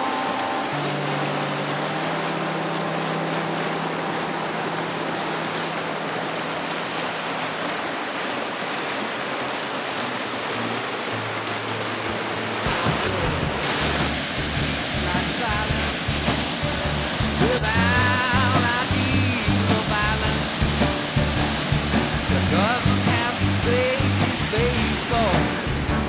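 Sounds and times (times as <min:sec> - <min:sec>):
background music with low notes: 0:00.0 - 0:06.2, 0:10.6 - 0:26.0
creek water rushing over rapids: 0:00.0 - 0:26.0
bass-heavy beat: 0:12.6 - 0:26.0.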